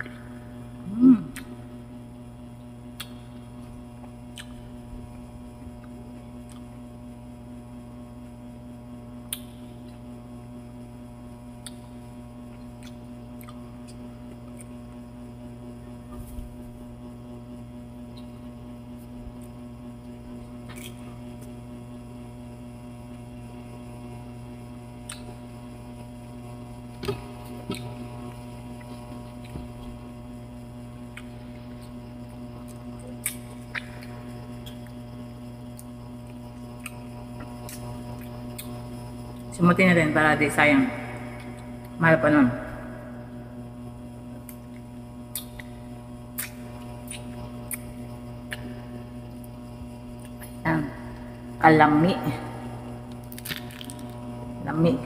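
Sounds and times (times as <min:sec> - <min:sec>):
steady electrical hum: 0:00.0 - 0:55.0
mouth clicks and chewing smacks: 0:04.3 - 0:04.6, 0:44.5 - 0:47.9, 0:48.5 - 0:48.7.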